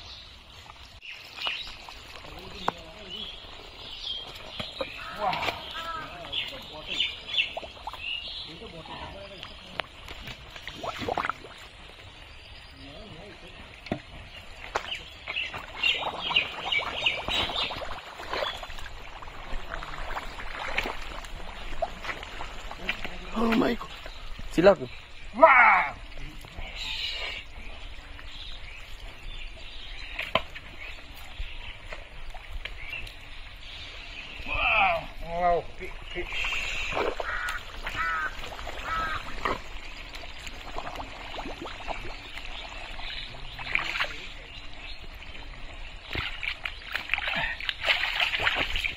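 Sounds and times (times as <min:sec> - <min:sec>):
wet mud squelching and splattering: 0:01.1 - 0:08.3, 0:08.9 - 0:11.8, 0:14.6 - 0:24.2, 0:36.1 - 0:44.4, 0:46.0 - 0:48.9.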